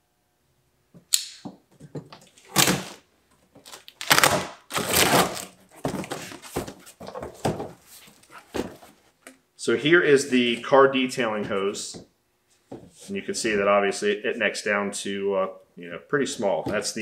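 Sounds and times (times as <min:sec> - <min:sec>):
box cutter slitting packing tape: 0:02.5 - 0:03.0, 0:03.7 - 0:05.6
box contents shifting: 0:03.6 - 0:09.0.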